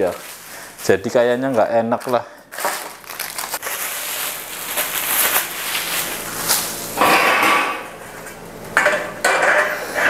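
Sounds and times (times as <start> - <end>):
plastic wrapping crinkling: 0.0 - 7.0.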